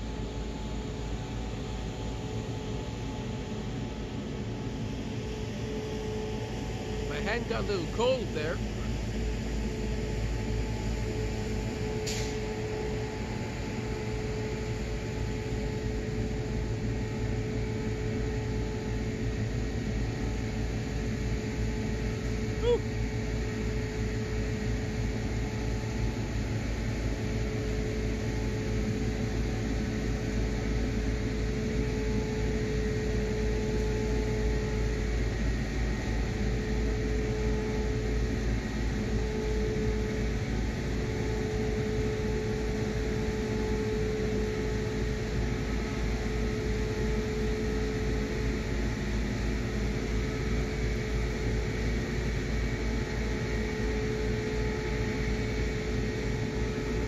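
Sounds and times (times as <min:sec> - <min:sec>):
mechanical hum: 0:00.0 - 0:57.0.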